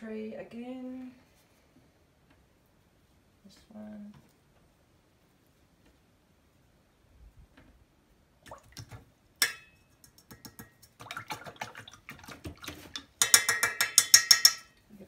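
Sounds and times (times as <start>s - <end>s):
water sloshing in jar: 10.3s - 13.7s.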